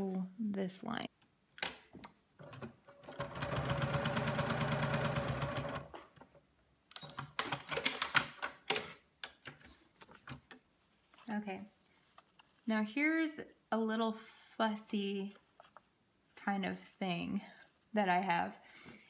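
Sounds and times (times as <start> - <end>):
electric sewing machine stitching: 2.9 - 6.0
paper rustling: 9.6 - 12.7.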